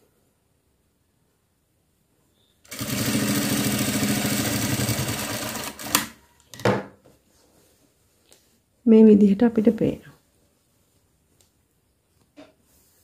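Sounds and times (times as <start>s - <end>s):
sewing machine stitching: 2.7s - 6.2s.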